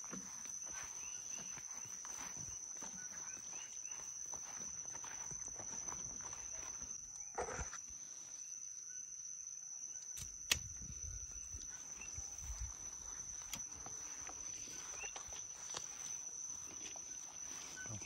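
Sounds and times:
shuffling footsteps: 0.0 - 6.9, 11.5 - 18.0
crickets trilling: 0.0 - 18.0.

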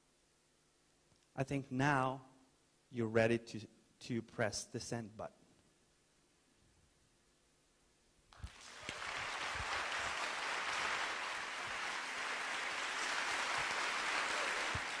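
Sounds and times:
audience applauding: 8.4 - 15.0.

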